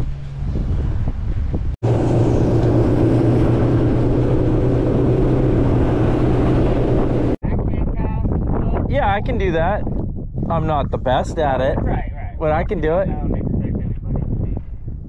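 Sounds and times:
wind: 0:00.0 - 0:15.0
outboard motor running: 0:01.8 - 0:07.4
rushing water: 0:01.8 - 0:07.4.

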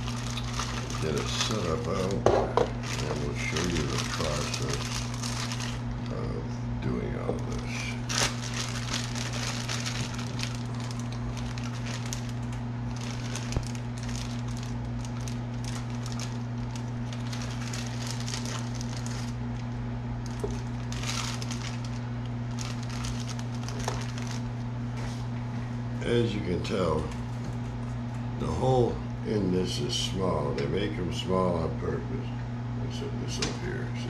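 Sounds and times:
plastic bag crinkling: 0:00.0 - 0:06.2, 0:07.2 - 0:24.7
steady low hum: 0:00.0 - 0:34.0.

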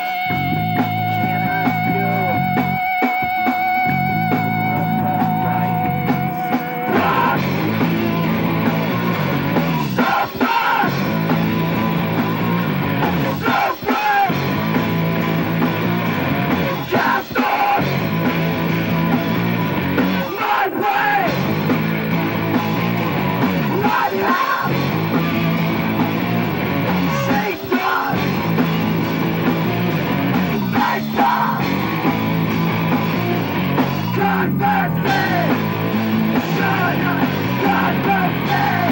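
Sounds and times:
live rock band playing: 0:00.0 - 0:38.9
shouted lead vocals: 0:00.0 - 0:38.9.

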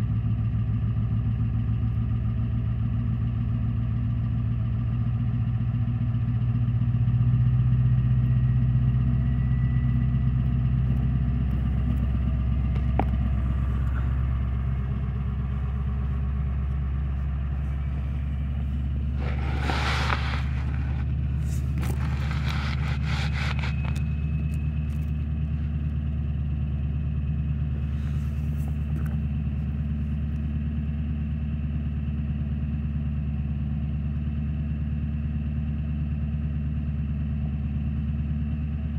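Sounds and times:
diesel engine idling: 0:00.0 - 0:38.9
short scraping sounds: 0:17.6 - 0:24.3.

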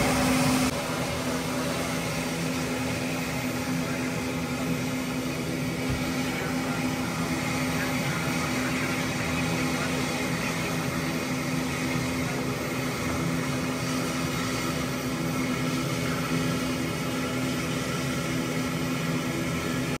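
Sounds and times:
aircraft engines droning: 0:00.0 - 0:20.0.

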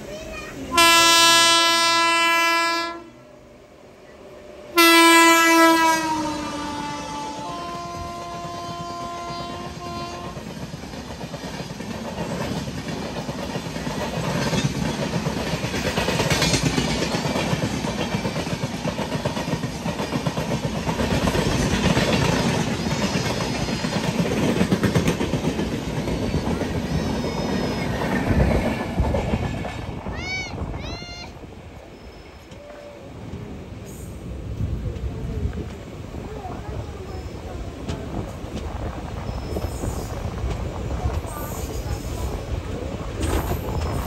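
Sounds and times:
locomotive horn blast: 0:00.7 - 0:03.2, 0:04.7 - 0:10.5
train wheels rumbling and clattering: 0:04.3 - 0:44.0.

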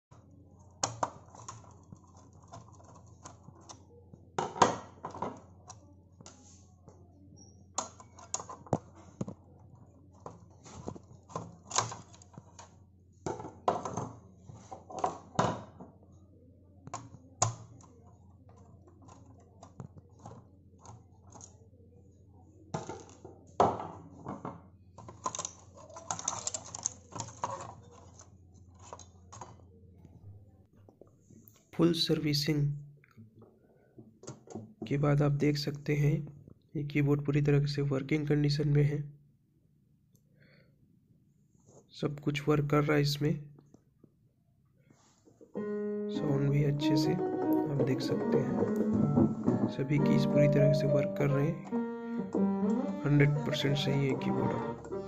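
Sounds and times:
plastic parts clicking and clattering: 0:00.7 - 0:03.8, 0:04.4 - 0:06.4, 0:07.7 - 0:16.0, 0:16.8 - 0:21.6, 0:22.7 - 0:29.7.

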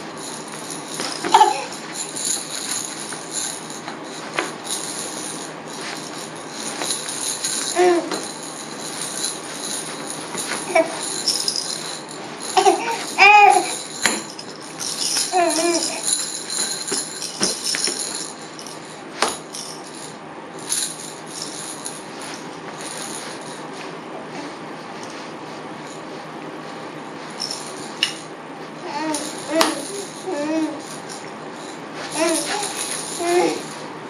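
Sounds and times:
baby rattles jingling: 0:00.0 - 0:23.7, 0:27.4 - 0:33.9
baby cooing: 0:12.6 - 0:13.8, 0:28.8 - 0:30.8, 0:32.2 - 0:33.6.

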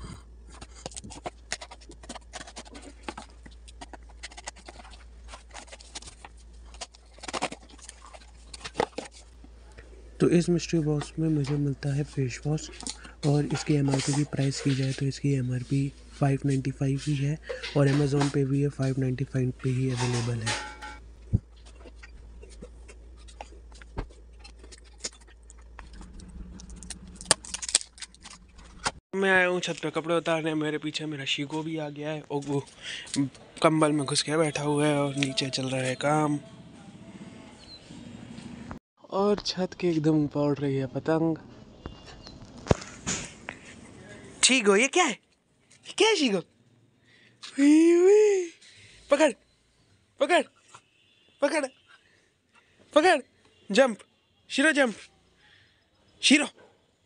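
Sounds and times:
paper rustles: 0:00.5 - 0:09.4, 0:12.8 - 0:17.2.

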